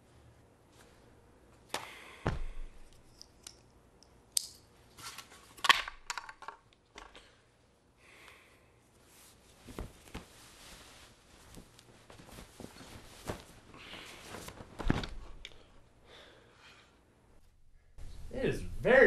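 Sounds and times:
plastic helmet being handled: 4.9s - 7.3s, 9.0s - 15.7s
clothing rustling: 8.8s - 15.9s.

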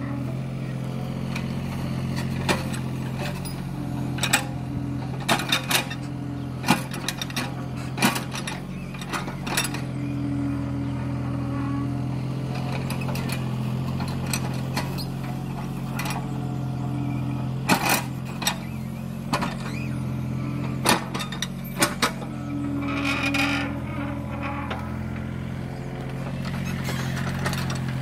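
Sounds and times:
excavator diesel engine running: 0.0s - 28.0s
excavator bucket knocking and clanking: 20.7s - 28.0s.

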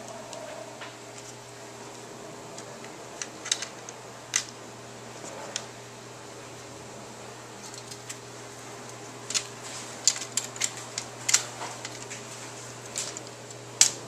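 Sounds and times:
steady low hum: 0.0s - 14.0s
plastic track pieces clicking: 2.6s - 4.5s, 9.3s - 12.1s, 12.9s - 14.0s.

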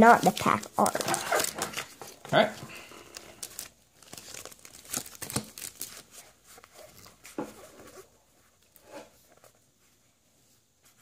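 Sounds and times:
wrapper crinkling and tearing: 0.0s - 7.1s.

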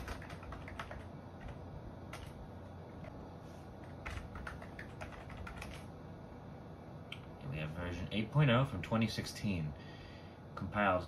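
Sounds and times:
keyboard keystrokes: 0.0s - 2.4s, 3.8s - 5.9s
steady low hum: 0.0s - 11.0s.

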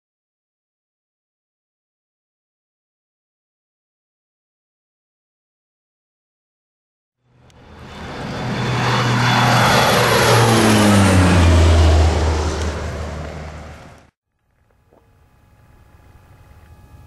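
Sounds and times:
propeller airplane flying past: 7.2s - 17.0s.

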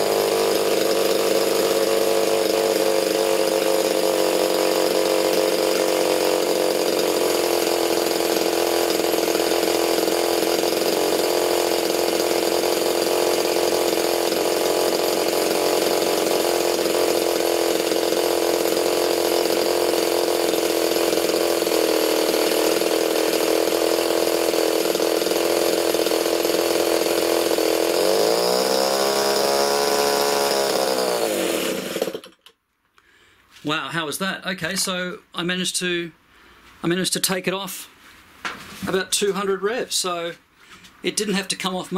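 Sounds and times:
model aircraft engine running: 0.0s - 32.3s.

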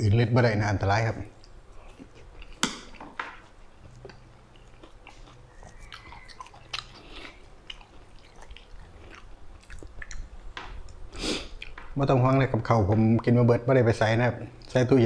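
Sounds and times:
man chewing: 1.4s - 12.0s
mouth smacks and clicks: 1.4s - 12.0s, 12.9s - 13.4s.

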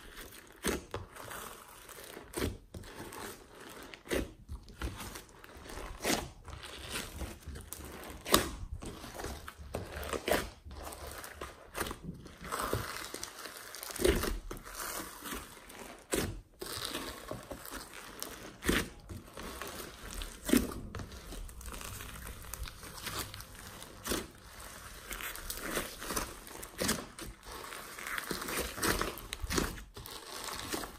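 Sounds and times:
soft squishing rustle: 0.0s - 30.9s.

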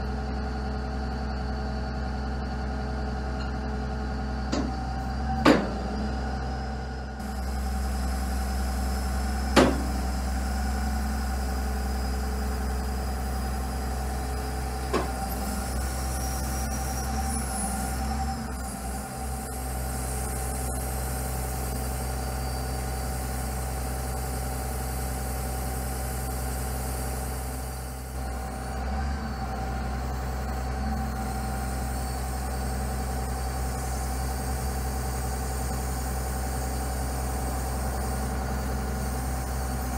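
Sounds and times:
crawler carrier engine running: 0.0s - 39.9s
sharp knock: 9.6s - 10.0s.

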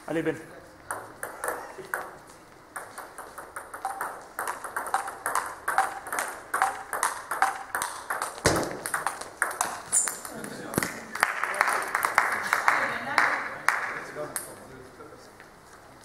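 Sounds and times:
table tennis balls clicking: 0.8s - 10.9s.

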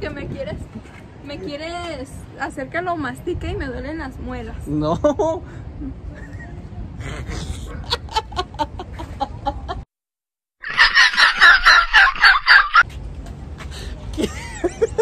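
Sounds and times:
loud rapid high cackling: 10.6s - 12.8s.

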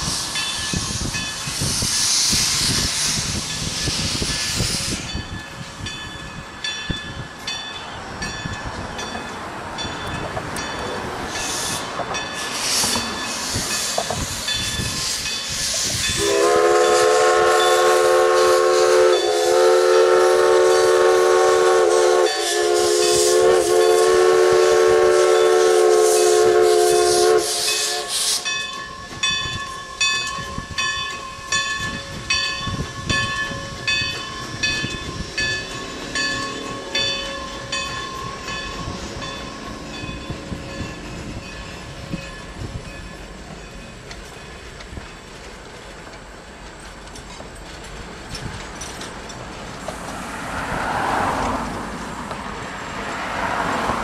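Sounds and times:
steam hissing: 0.0s - 5.9s, 11.2s - 54.0s
train rolling: 0.0s - 54.0s
locomotive bell ringing: 0.3s - 1.6s, 3.4s - 24.6s, 25.2s - 49.6s
loud steam whistle: 11.4s - 28.6s.

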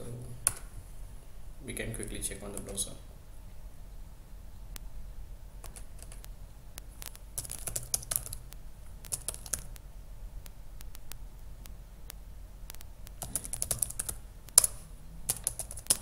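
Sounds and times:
computer keyboard key clicks: 7.0s - 8.4s, 9.1s - 9.8s, 12.7s - 16.0s.

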